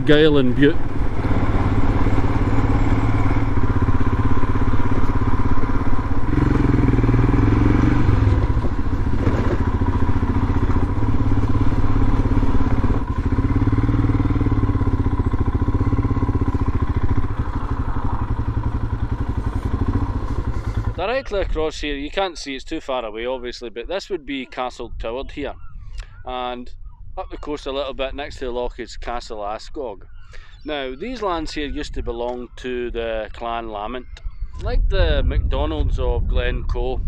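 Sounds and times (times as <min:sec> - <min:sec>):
motorcycle engine running: 0:00.0 - 0:21.5.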